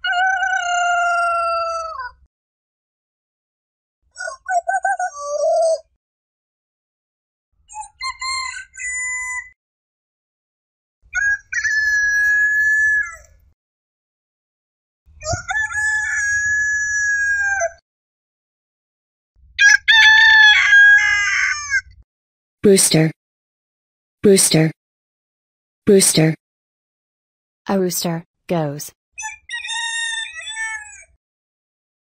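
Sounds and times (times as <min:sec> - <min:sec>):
rooster crowing: 0:00.0 - 0:01.9, 0:19.6 - 0:21.6.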